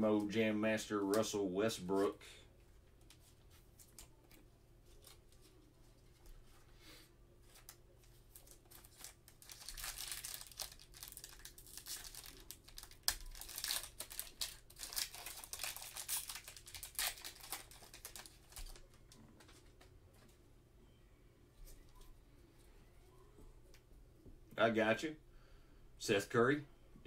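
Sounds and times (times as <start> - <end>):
plastic wrapper crinkling and tearing: 7.4 - 19.9.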